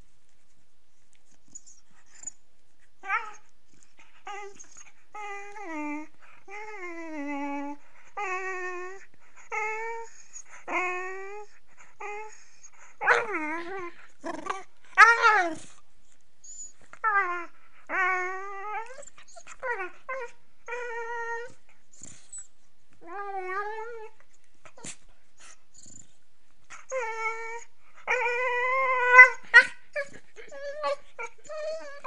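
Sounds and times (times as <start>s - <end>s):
puppy whining calls: 1.5s - 2.4s, 3.0s - 3.5s, 4.2s - 15.8s, 16.4s - 26.1s, 26.7s - 32.0s
puppy yowls: 26.9s - 32.0s.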